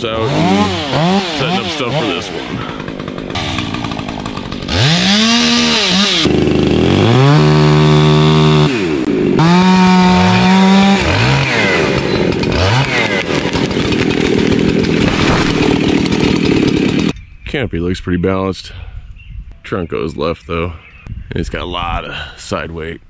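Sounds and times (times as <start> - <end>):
chainsaw revving and cutting: 0.0 - 17.2.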